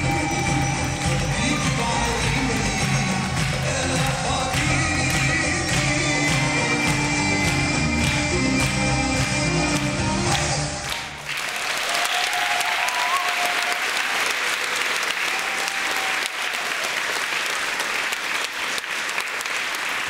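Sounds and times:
music: 0:00.0 - 0:11.2
audience applauding: 0:00.0 - 0:20.0.

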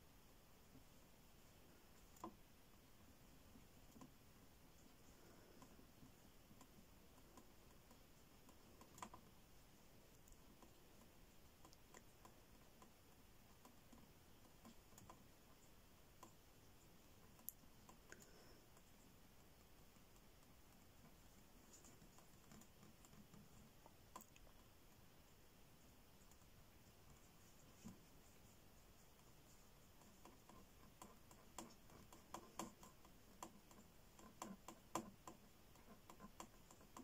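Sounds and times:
faint small clicks: 0:10.1 - 0:25.0.

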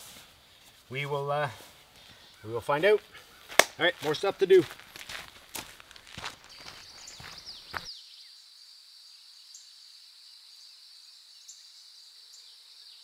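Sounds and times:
insect chorus: 0:06.1 - 0:13.0.

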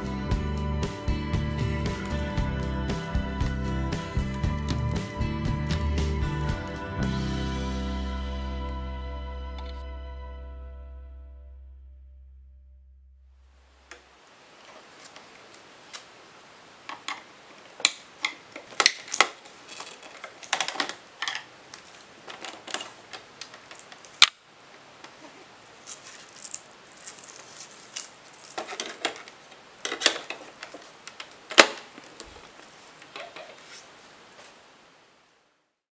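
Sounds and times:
plastic and metal parts rattling: 0:16.9 - 0:24.3, 0:25.9 - 0:32.4.

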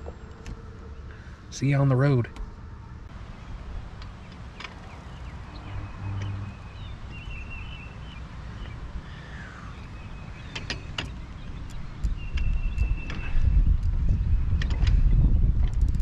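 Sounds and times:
sharp clicks: 0:10.5 - 0:14.0
low rumble: 0:11.5 - 0:16.0.

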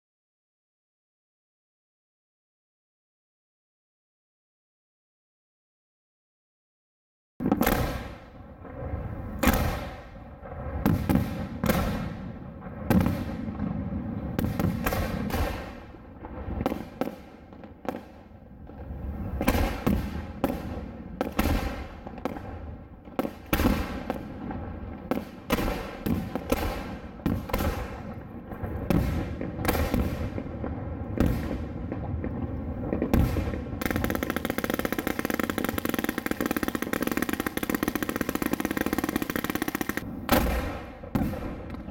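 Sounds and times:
dense firework crackle: 0:07.4 - 0:41.9
firework shells banging: 0:33.8 - 0:41.3.

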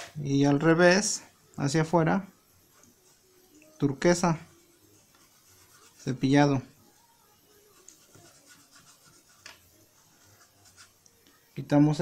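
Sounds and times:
paintbrush scrubbing over cloth: 0:02.6 - 0:11.0.

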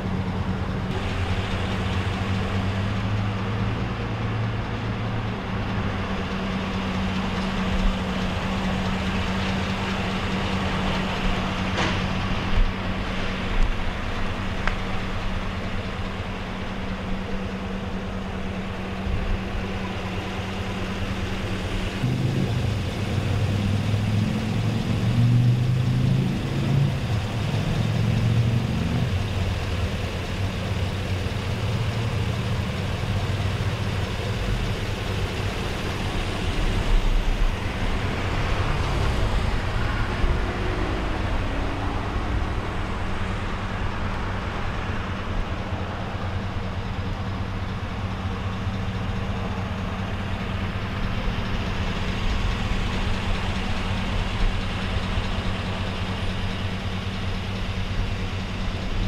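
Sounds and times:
vehicle engine idling: 0:00.0 - 0:59.0.

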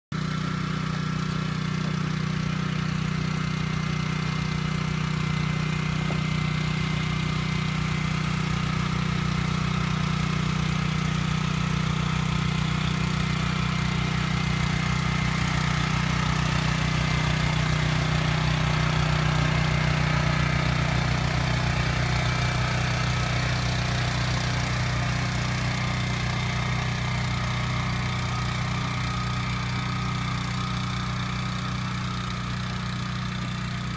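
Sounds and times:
small petrol engine running: 0:00.1 - 0:33.9.

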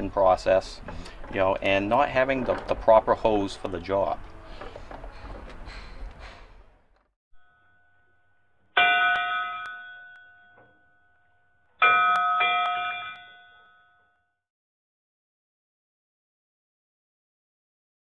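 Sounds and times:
bell-like chime strikes: 0:08.8 - 0:11.2, 0:11.8 - 0:14.2.

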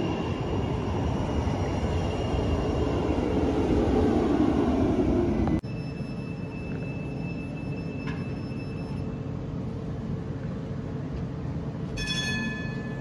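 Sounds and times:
tram equipment humming: 0:00.0 - 0:13.0
faint high whine: 0:05.6 - 0:09.6.

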